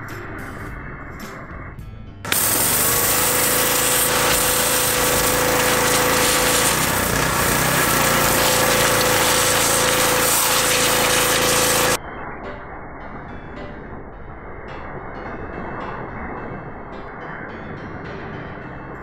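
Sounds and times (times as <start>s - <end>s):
pressure washer jet hissing: 2.3s - 12.0s.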